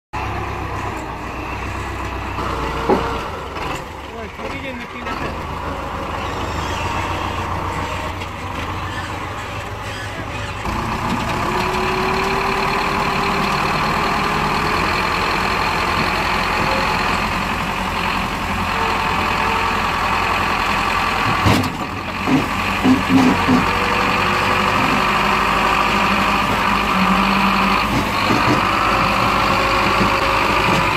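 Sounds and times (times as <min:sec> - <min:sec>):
tractor diesel engine running: 0:00.2 - 0:30.9.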